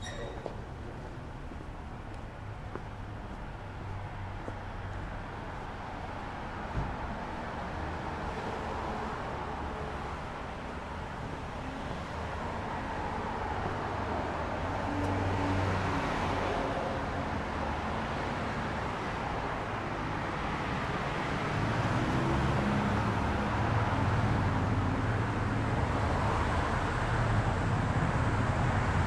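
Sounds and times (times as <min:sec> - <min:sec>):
cars passing: 0:00.0 - 0:29.0.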